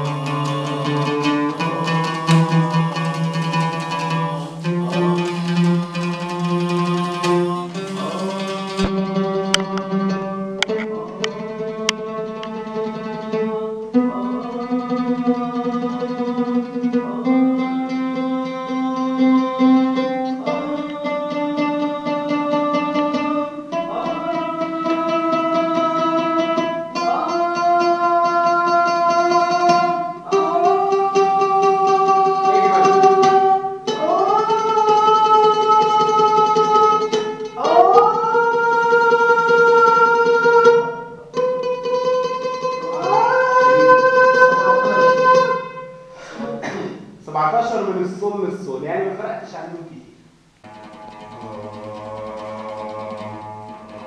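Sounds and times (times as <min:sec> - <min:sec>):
man singing held notes: 0:00.0 - 0:09.0, 0:20.3 - 0:40.9, 0:42.8 - 0:50.2.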